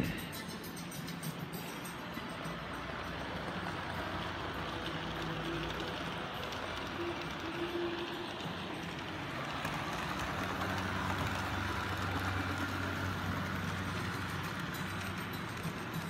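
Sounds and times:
model train motor hum: 0:01.7 - 0:16.0.

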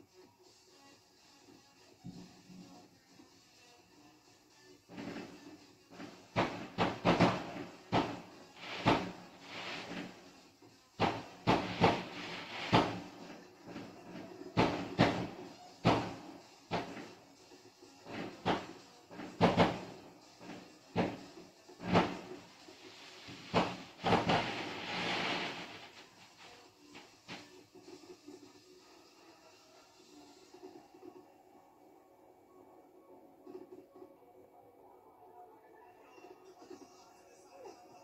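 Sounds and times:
steady hiss: 0:00.0 - 0:30.9
fireworks exploding: 0:06.3 - 0:10.2, 0:11.0 - 0:13.3, 0:21.8 - 0:26.5.

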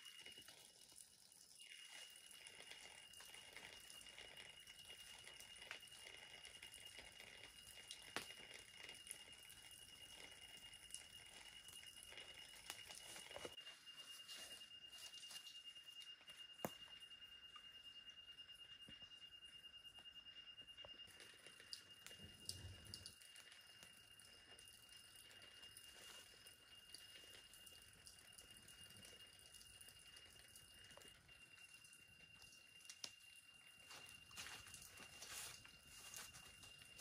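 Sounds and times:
high-pitched insect trill: 0:00.0 - 0:37.0
small crackles and rustles: 0:11.0 - 0:16.9, 0:25.3 - 0:27.7, 0:32.3 - 0:37.0.

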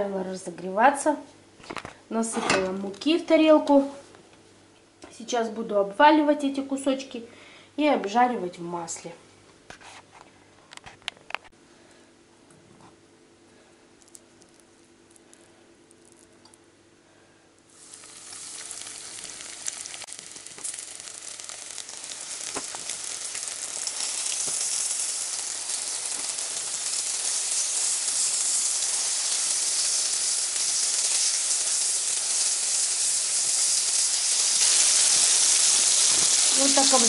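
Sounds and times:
fish sizzling in frying pan: 0:17.7 - 0:37.0.

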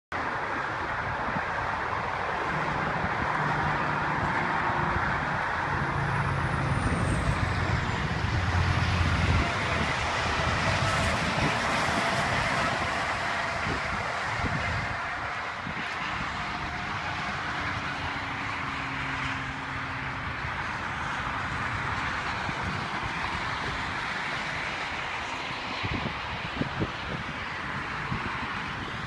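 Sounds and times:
road traffic noise: 0:00.1 - 0:29.0
vehicle engine passing by: 0:02.5 - 0:23.0.

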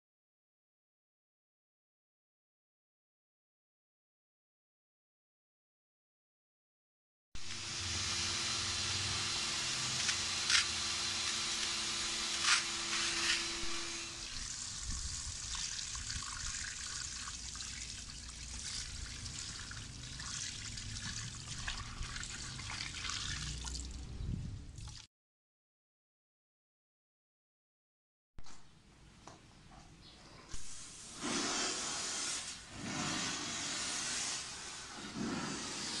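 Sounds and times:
wet vacuum humming and hissing: 0:07.4 - 0:14.7, 0:30.6 - 0:36.0
water splashing onto concrete: 0:14.3 - 0:24.0.

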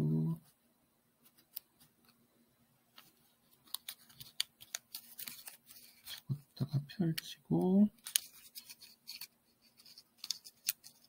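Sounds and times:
paper crinkling and ticking: 0:03.0 - 0:06.4, 0:07.9 - 0:11.0.

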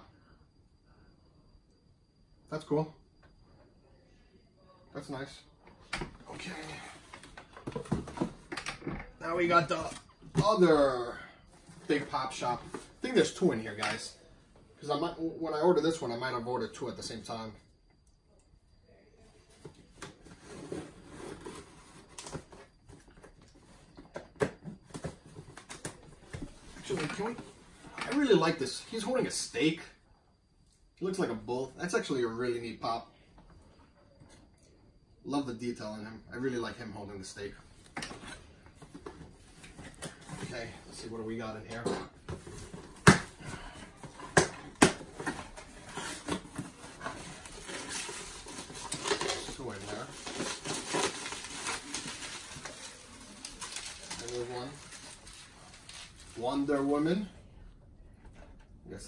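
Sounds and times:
cardboard and packing rustling: 0:06.2 - 0:10.9, 0:19.4 - 0:28.3, 0:37.9 - 0:57.3
cardboard rustling: 0:42.2 - 0:57.0.

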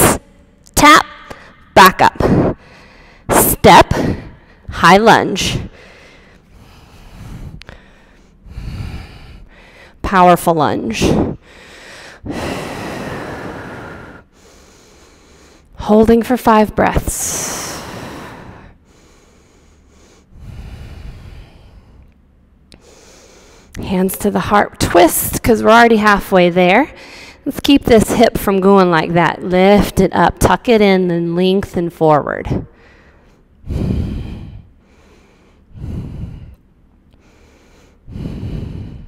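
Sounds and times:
woman breathing slowly: 0:02.2 - 0:03.3, 0:05.4 - 0:10.0, 0:11.0 - 0:15.8, 0:17.1 - 0:23.8, 0:27.0 - 0:27.5, 0:32.5 - 0:39.0.

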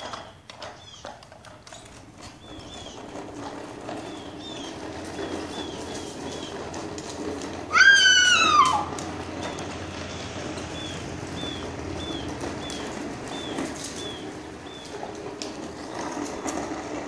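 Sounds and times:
tricycle rolling on concrete: 0:00.0 - 0:17.0
tricycle squeaking: 0:00.0 - 0:17.0
child calling out: 0:07.7 - 0:09.0.

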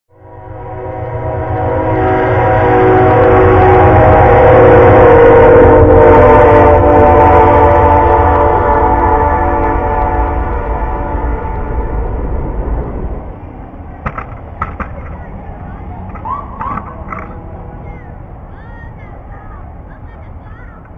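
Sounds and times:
train horn chord: 0:00.1 - 0:12.8, 0:16.3 - 0:18.2
train rumbling past: 0:00.1 - 0:20.9.

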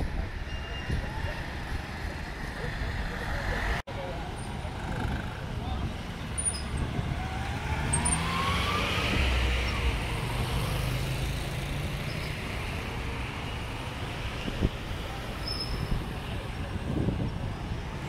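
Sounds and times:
cars driving past: 0:04.6 - 0:16.0
engine rising in pitch: 0:07.2 - 0:10.9.

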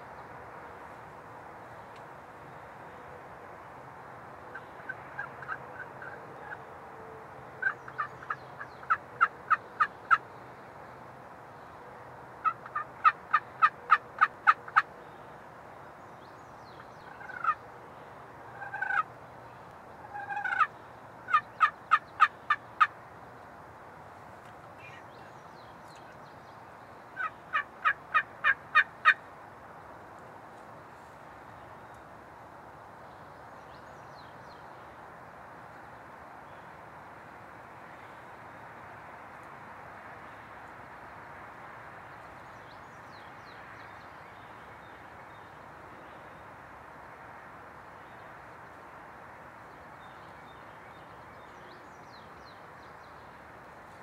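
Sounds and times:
wild turkey yelping: 0:04.5 - 0:06.6, 0:07.6 - 0:10.2, 0:12.4 - 0:14.9, 0:17.0 - 0:17.6, 0:18.6 - 0:19.1, 0:20.1 - 0:20.7, 0:21.3 - 0:22.9, 0:27.2 - 0:29.2.

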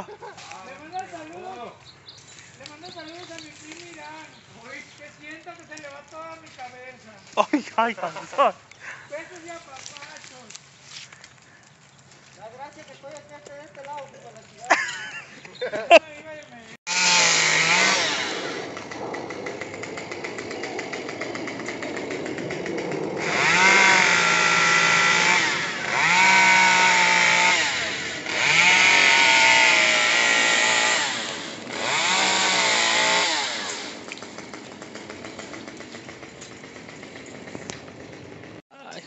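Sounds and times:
chainsaw revving: 0:07.8 - 0:08.5, 0:16.9 - 0:38.6.

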